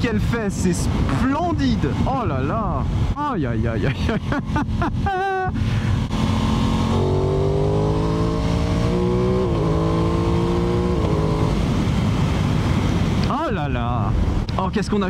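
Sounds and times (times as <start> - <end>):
motorcycle engine accelerating: 4.4 - 13.3.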